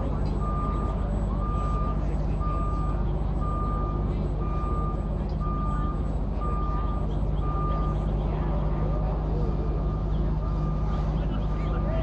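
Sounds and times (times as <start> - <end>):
diesel engine drone: 0.0 - 12.0
vehicle backup alarm beeping: 0.0 - 12.0.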